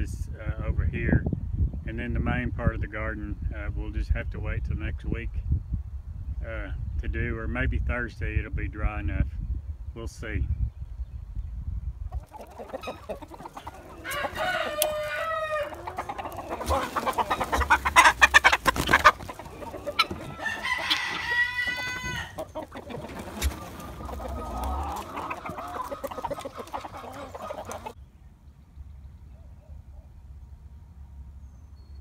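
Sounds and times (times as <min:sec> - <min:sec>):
chickens clucking: 0:12.0 - 0:28.0
rooster crowing: 0:13.8 - 0:17.4, 0:19.5 - 0:22.5.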